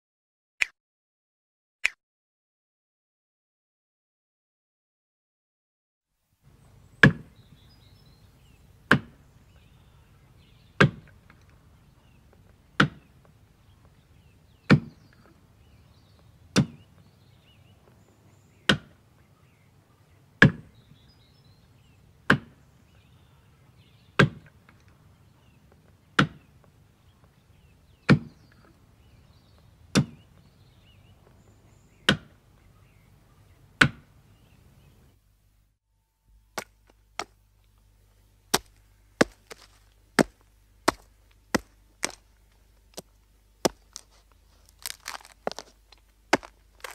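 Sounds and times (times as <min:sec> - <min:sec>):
axe chopping into wood: 0:08.9 - 0:09.2, 0:10.8 - 0:11.1, 0:12.8 - 0:13.0, 0:16.6 - 0:16.8, 0:22.3 - 0:22.5, 0:29.9 - 0:30.2, 0:38.5 - 0:42.2, 0:46.3 - 0:46.9.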